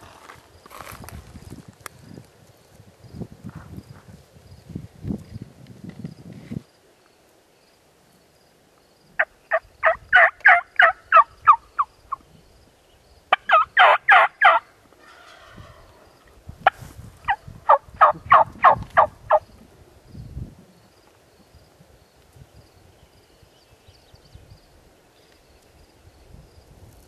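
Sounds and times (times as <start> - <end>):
turkey yelping: 9.8 - 11.9, 13.3 - 14.6, 17.3 - 19.4.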